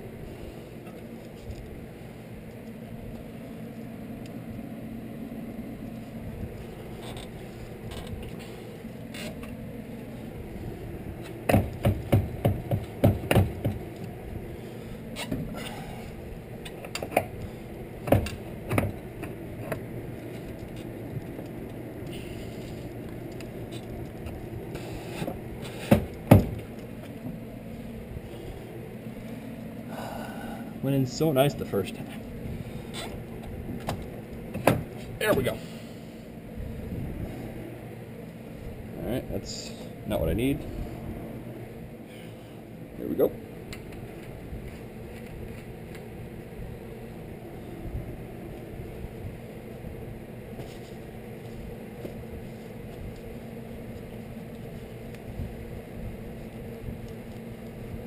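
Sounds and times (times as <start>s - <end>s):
steady low hum: 0.0s - 58.0s
knocks on wheel hub: 11.4s - 13.8s.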